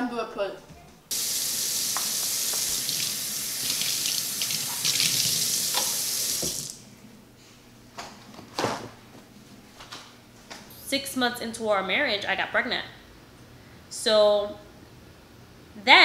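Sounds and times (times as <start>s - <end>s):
tap water running: 1.1s - 6.8s.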